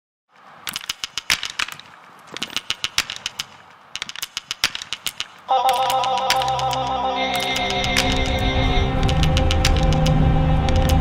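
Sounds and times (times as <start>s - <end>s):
crackling pops and clicks: 0.3s - 11.0s
music with sustained tones: 5.5s - 11.0s.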